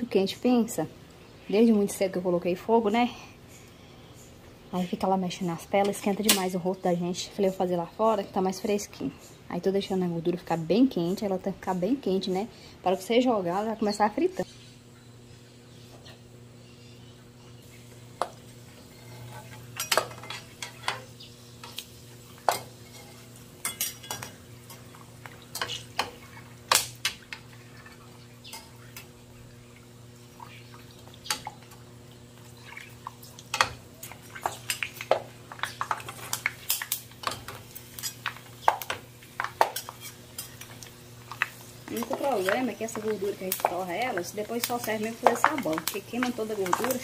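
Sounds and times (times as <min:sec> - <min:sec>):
low steady hum: 0:00.0 - 0:47.0
metal utensil clinking on pot: 0:19.2 - 0:21.1, 0:22.5 - 0:24.8.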